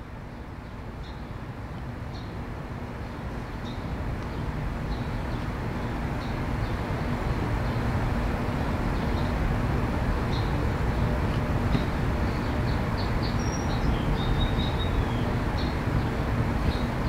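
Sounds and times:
low mechanical rumble: 0.0 - 17.0.

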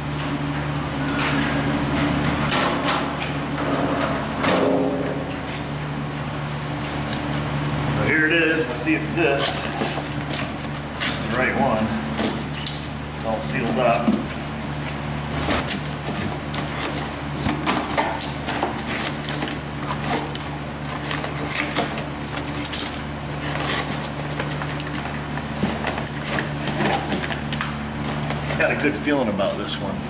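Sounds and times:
steady low hum: 0.0 - 30.0
packaging and papers rustling: 9.3 - 11.4, 15.3 - 28.9.

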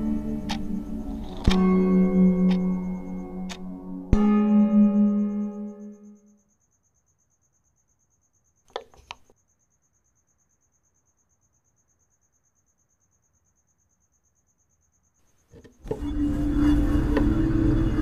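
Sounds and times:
music: 0.0 - 6.5, 15.8 - 18.0
crickets chirping: 0.0 - 18.0.

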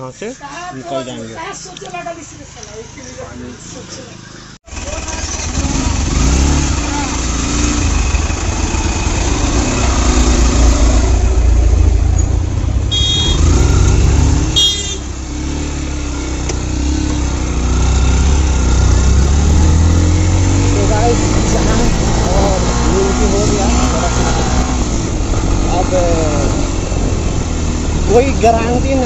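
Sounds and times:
motorcycle engine rumble: 1.4 - 29.0
motorcycle horn beeps: 12.2 - 13.7, 14.4 - 15.2.

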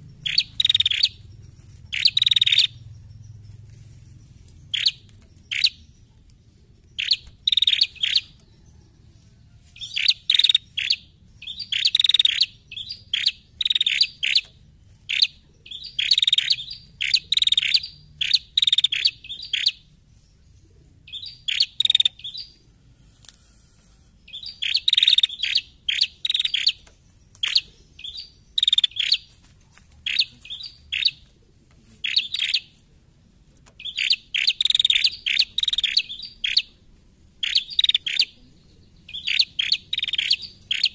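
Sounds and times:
bird chattering calls: 0.0 - 3.2, 4.7 - 5.9, 6.9 - 8.4, 9.8 - 19.8, 21.1 - 22.6, 24.3 - 29.3, 30.0 - 31.3, 32.0 - 32.8, 33.8 - 36.8, 37.4 - 38.4, 39.1 - 40.9.

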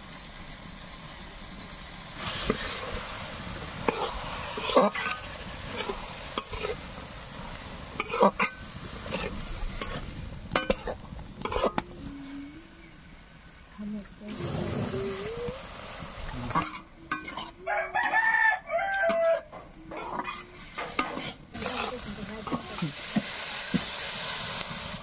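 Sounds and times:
onions sizzling in a wok: 0.0 - 25.0
metal spatula scraping a wok: 2.2 - 3.0, 3.8 - 6.9, 7.9 - 11.8, 16.4 - 18.2, 18.8 - 24.0.

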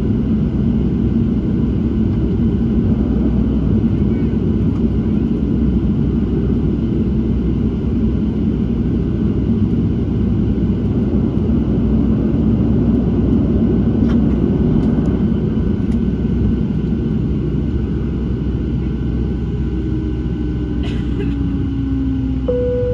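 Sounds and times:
jet engines idling rumble: 0.0 - 22.9
faint steady whine: 18.7 - 22.9.

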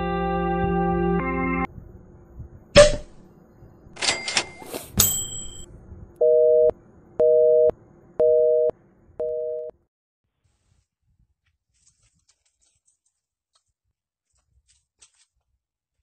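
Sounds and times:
notification bell ding: 5.0 - 5.7.

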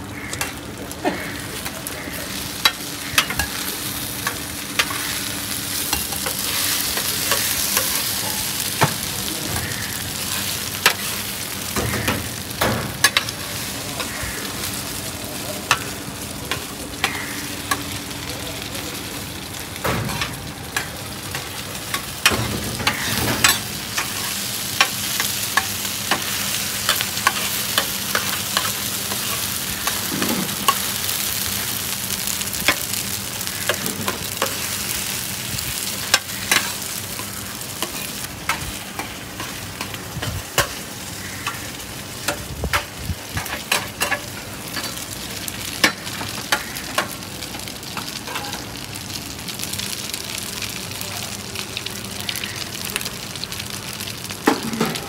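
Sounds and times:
omelette sizzling in a pan: 0.1 - 55.0.

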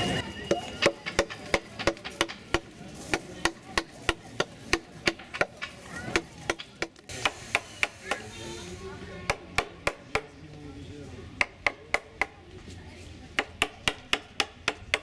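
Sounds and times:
mallet striking carving gouge: 0.5 - 8.2, 9.3 - 10.3, 11.4 - 12.4, 13.4 - 15.0.

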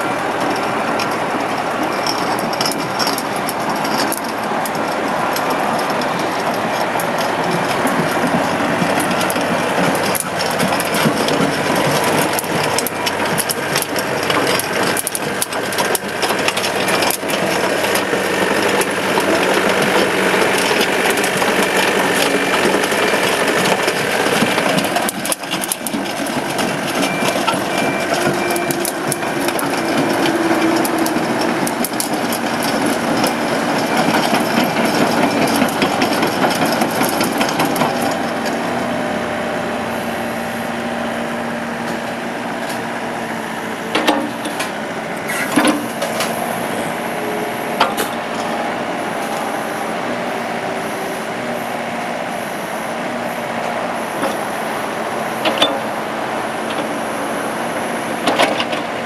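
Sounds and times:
diesel engine running: 0.0 - 59.0
metallic clatter and knocks: 0.3 - 38.6.

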